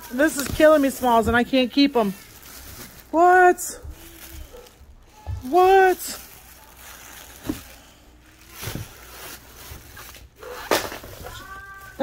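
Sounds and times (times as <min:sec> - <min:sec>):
items shifting in cardboard box: 0:00.0 - 0:12.0
plastic packaging rustling: 0:00.0 - 0:12.0.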